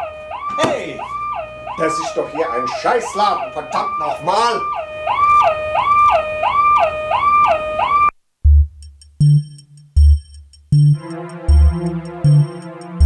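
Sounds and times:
electronic siren wailing: 0:00.0 - 0:08.1
electronic music with drum beat: 0:08.5 - 0:13.0.

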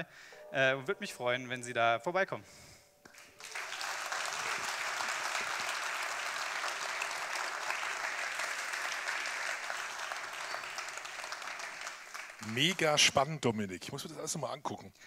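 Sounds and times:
audience applauding: 0:03.1 - 0:13.1.

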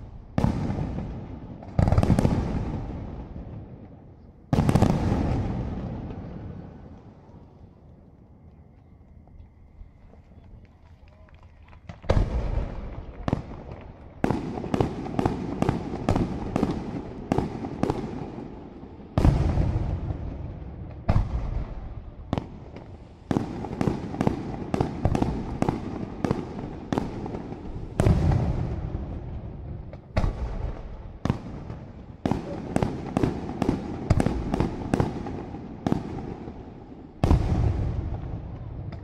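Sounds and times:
deep firework booms: 0:00.0 - 0:07.0, 0:11.9 - 0:39.0.

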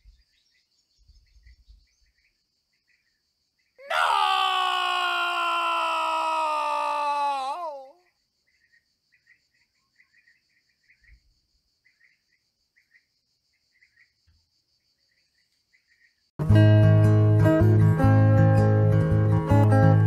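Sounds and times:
bird chirps: 0:00.0 - 0:03.8, 0:08.0 - 0:16.3
falling wavering groan: 0:03.8 - 0:08.0
loud acoustic guitar music: 0:16.4 - 0:20.0.

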